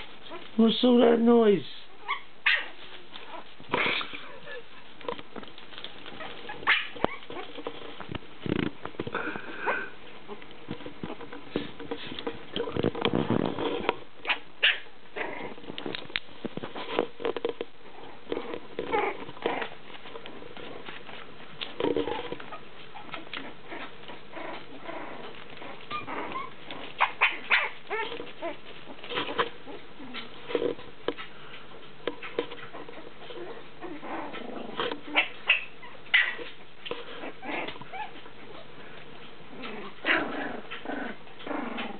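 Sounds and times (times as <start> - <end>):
puppies whimpering and yipping: 1.9 - 4.9, 5.8 - 7.7, 22.0 - 30.5, 32.2 - 38.8.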